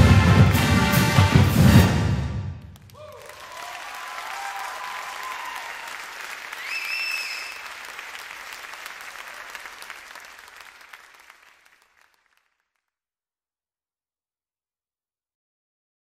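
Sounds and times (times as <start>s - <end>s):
crowd cheering and applauding: 2.6s - 12.6s
shrill whistle: 6.5s - 7.8s.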